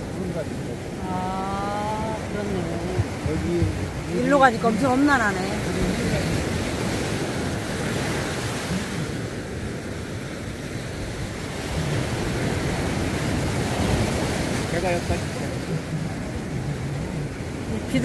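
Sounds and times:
ocean surf breaking: 0.0s - 18.0s.

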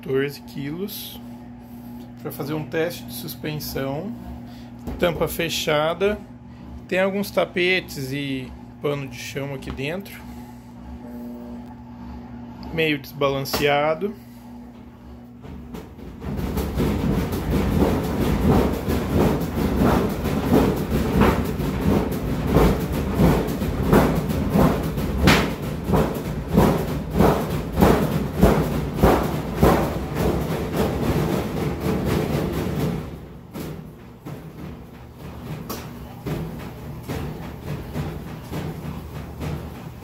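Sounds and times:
washing machine tub thudding: 4.8s - 6.2s, 13.4s - 13.9s, 15.3s - 40.0s.

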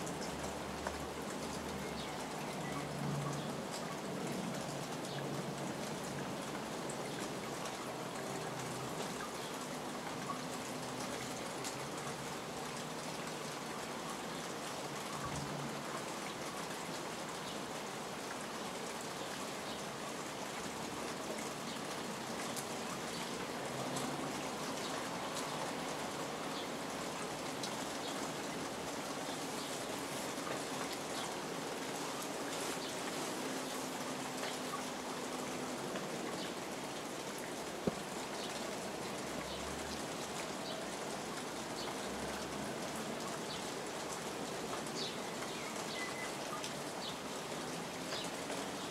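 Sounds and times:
raindrops ticking close by: 0.0s - 48.9s
steady rain falling: 0.0s - 48.9s.

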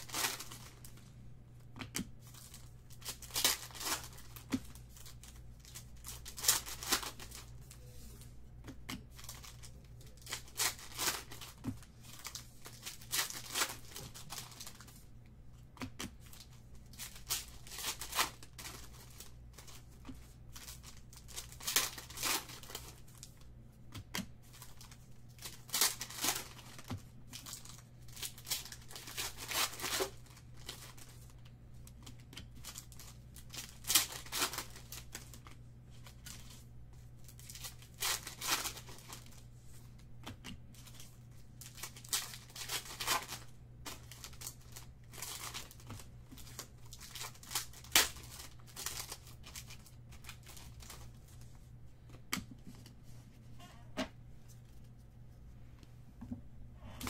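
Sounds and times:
foil wrappers tearing and crinkling: 0.0s - 0.9s, 2.2s - 7.6s, 9.1s - 15.0s, 16.2s - 19.8s, 20.4s - 23.4s, 24.5s - 31.3s, 31.9s - 36.6s, 37.3s - 39.4s, 40.8s - 51.2s
steady low hum: 48.8s - 57.0s.

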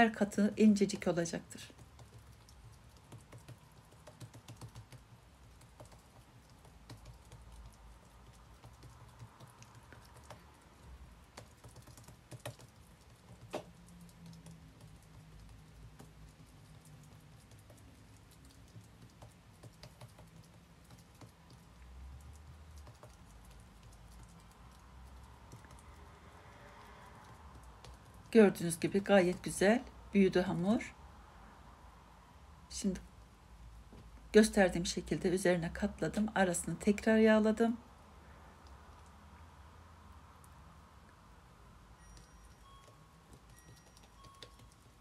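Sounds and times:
fingertips patting dough: 1.7s - 26.0s.

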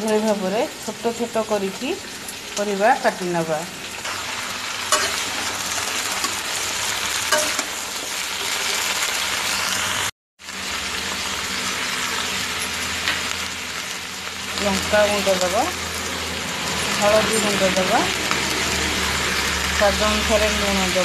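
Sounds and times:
vegetables sizzling in hot oil: 0.0s - 21.0s
steel spatula clinking on pan: 4.9s - 5.3s, 7.3s - 7.7s.

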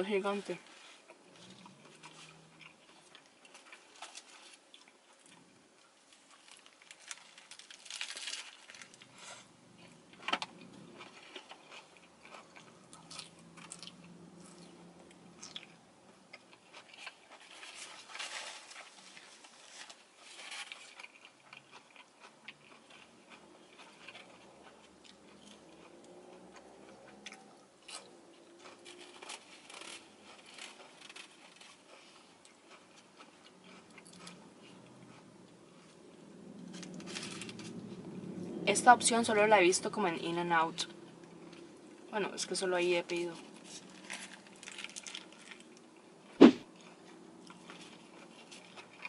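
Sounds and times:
crisp lettuce crunching: 1.3s - 5.4s, 6.1s - 34.4s, 35.8s - 37.8s, 43.1s - 45.8s.

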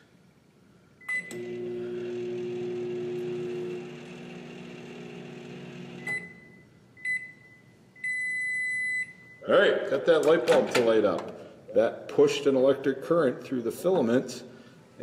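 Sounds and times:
microwave oven humming: 1.0s - 7.4s
microwave keypad beep: 6.0s - 9.4s
short beeps: 6.1s - 9.5s.

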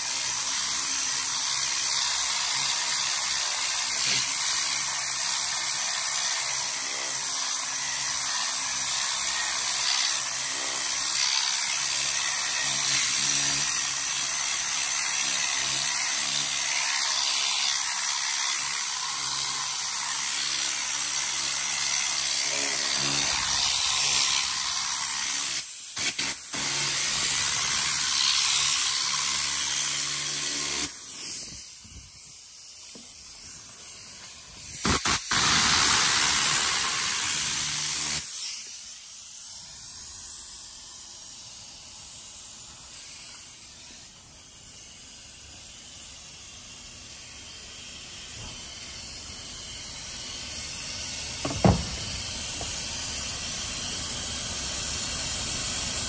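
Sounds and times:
compressed air spray hissing: 31.0s - 37.4s, 38.2s - 56.0s.

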